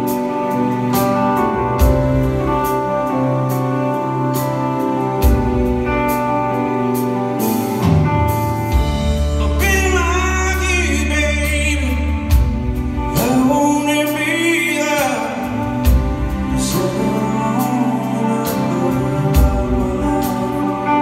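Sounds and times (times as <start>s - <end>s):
blues-rock band playing: 0.0s - 21.0s
man singing with vibrato: 9.4s - 21.0s.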